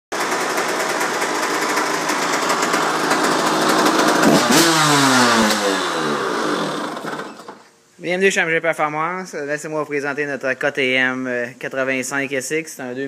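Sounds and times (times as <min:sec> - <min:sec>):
two-stroke engine idling: 0:00.1 - 0:07.6.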